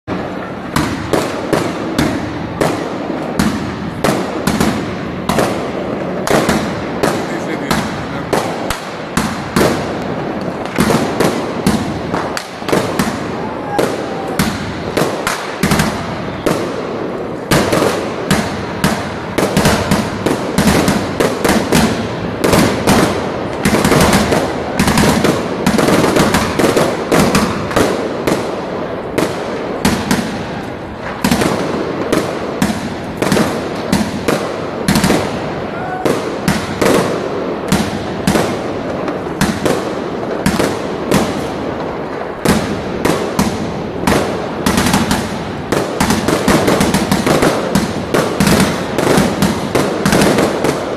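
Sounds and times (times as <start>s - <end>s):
fireworks bangs and crackles: 0.0s - 50.9s.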